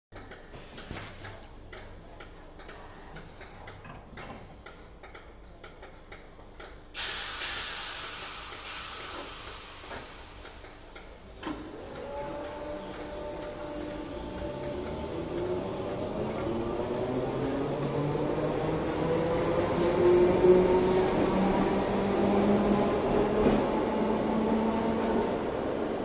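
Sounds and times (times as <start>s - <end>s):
compressed air hiss: 7.0s - 10.4s
train doors sliding shut: 11.4s - 25.3s.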